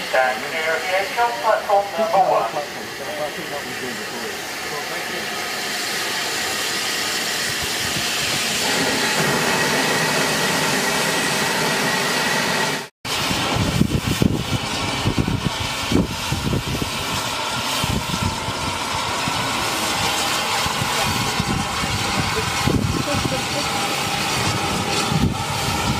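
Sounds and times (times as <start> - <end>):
steam hissing: 0.0 - 25.9.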